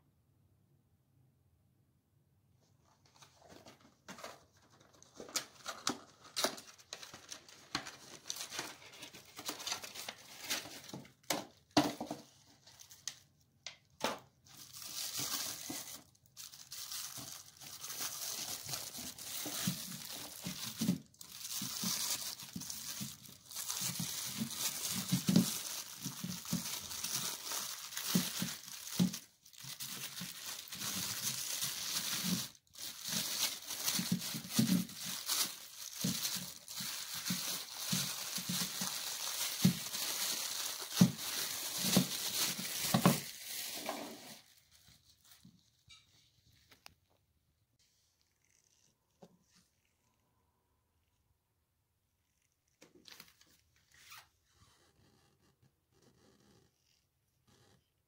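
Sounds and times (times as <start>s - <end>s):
box handling clicks and rustles: 3.2s - 12.3s, 17.8s - 44.5s
plastic bag crinkling: 3.4s - 13.4s, 14.3s - 45.9s.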